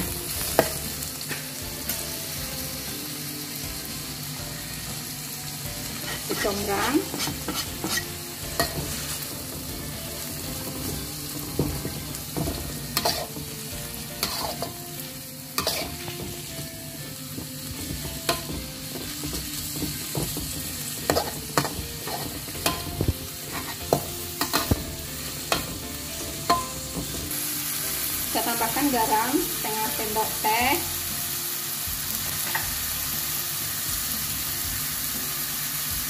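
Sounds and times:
vegetables sizzling in oil: 0.0s - 36.0s
spatula scraping wok: 5.9s - 30.9s.

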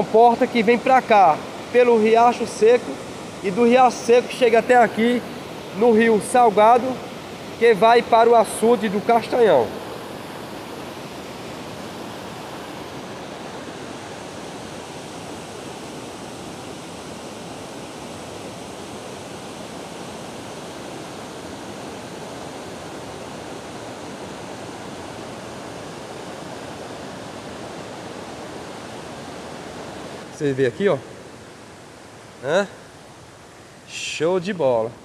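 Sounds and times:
water rushing over rocks: 0.0s - 10.8s.

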